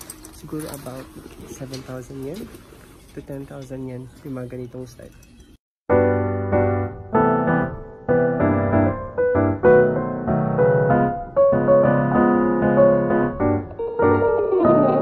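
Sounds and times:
piano music: 0:05.9 - 0:15.0.

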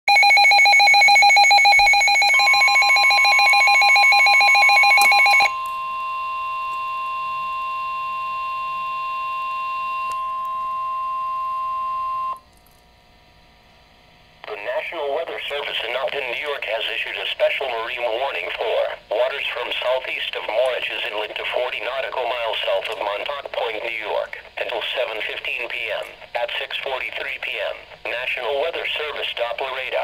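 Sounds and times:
rapidly pulsing alarm beep: 0:00.1 - 0:12.4
steady warning alarm tone: 0:00.1 - 0:12.4.

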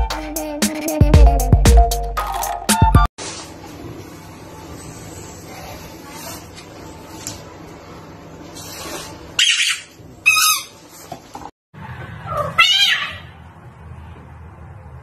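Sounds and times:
cat crying: 0:12.2 - 0:13.4.

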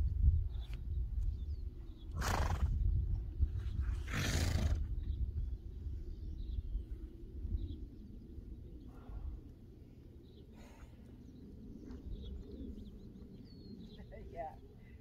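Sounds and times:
wind rumble on microphone: 0:00.0 - 0:15.0
horse blowing through nostrils: 0:04.0 - 0:04.8.

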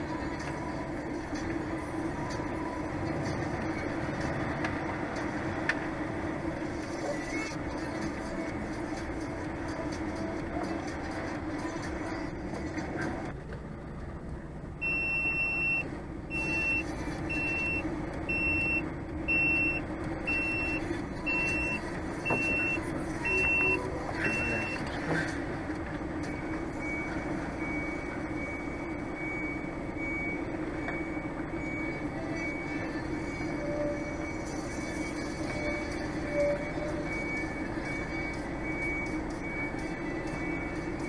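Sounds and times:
truck engine running: 0:00.0 - 0:41.0
reversing alarm beeping: 0:14.8 - 0:24.9, 0:26.2 - 0:41.0.

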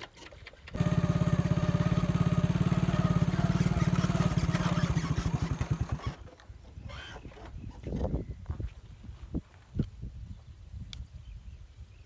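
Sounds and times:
small motorcycle engine running: 0:00.7 - 0:06.3.

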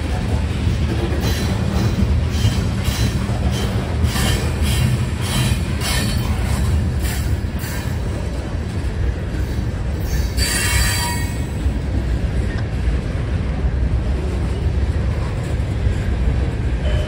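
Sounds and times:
freight train rumbling past: 0:00.0 - 0:17.0
wheel screech on rail: 0:01.2 - 0:08.1, 0:09.4 - 0:11.7.

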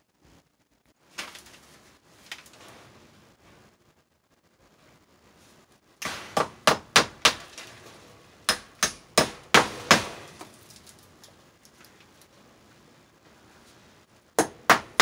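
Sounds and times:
hammer blows on nails: 0:06.0 - 0:10.6, 0:14.4 - 0:15.0.

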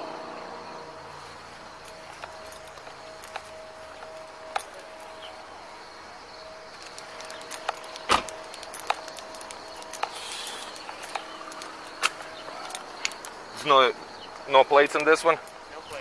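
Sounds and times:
faint steady tone: 0:00.0 - 0:16.0
sharp clicks: 0:06.7 - 0:13.4.

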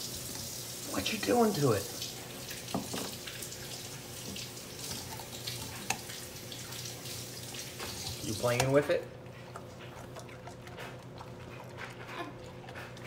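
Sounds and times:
puppy licking and mouthing: 0:04.8 - 0:13.0.

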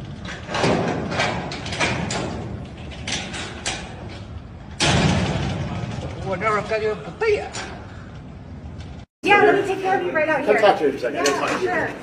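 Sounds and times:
sheet-metal door rattle: 0:00.2 - 0:06.3.

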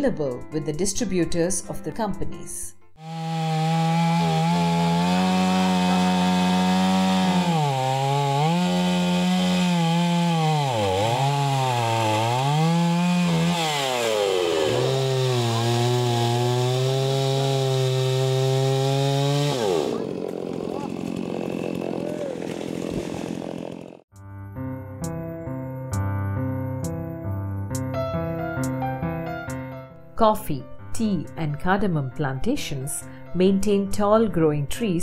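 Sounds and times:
chainsaw cutting wood: 0:03.0 - 0:24.1.

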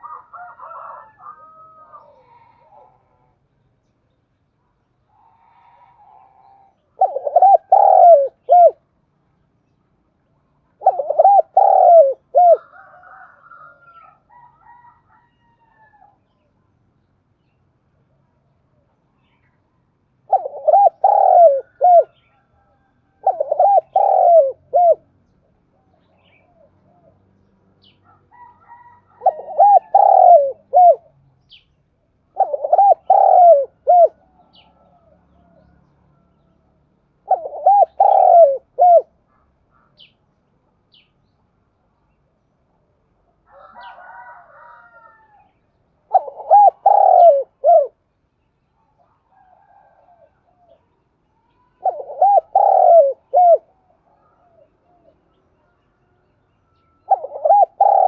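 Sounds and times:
dove cooing: 0:00.0 - 0:03.4, 0:05.1 - 0:08.9, 0:10.8 - 0:16.1, 0:20.2 - 0:25.1, 0:28.3 - 0:31.1, 0:32.3 - 0:36.4, 0:37.2 - 0:39.1, 0:46.1 - 0:48.0, 0:49.3 - 0:55.4, 0:57.0 - 0:58.0
soft faint bird call: 0:00.0 - 0:58.0.

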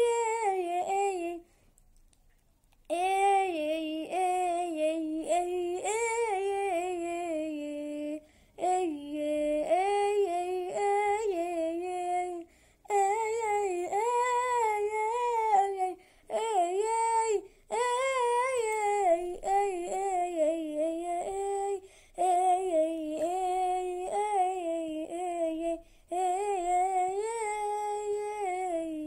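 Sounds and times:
boy singing a hymn: 0:00.0 - 0:01.5, 0:02.9 - 0:29.0
breaths: 0:01.4 - 0:01.8, 0:08.2 - 0:08.6, 0:12.4 - 0:12.9, 0:16.0 - 0:16.3, 0:17.4 - 0:17.7, 0:21.8 - 0:22.2, 0:25.8 - 0:26.1.

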